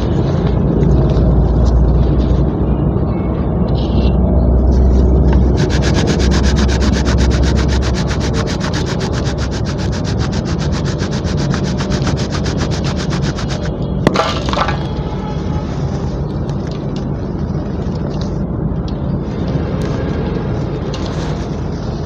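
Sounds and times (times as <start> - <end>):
cement grinding between hands: 5.4 - 14.8.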